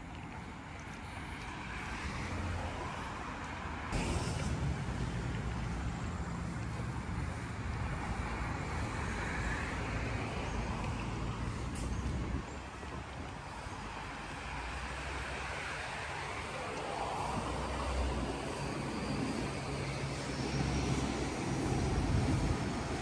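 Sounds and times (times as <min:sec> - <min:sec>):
road traffic: 0:00.0 - 0:23.0
heavy vehicle engine rumble: 0:03.4 - 0:23.0.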